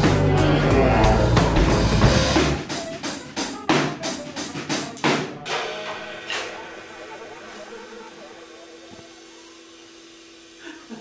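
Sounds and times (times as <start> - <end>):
bass: 0.0 - 2.8
saxophone: 0.0 - 4.1
drum kit: 0.0 - 9.5.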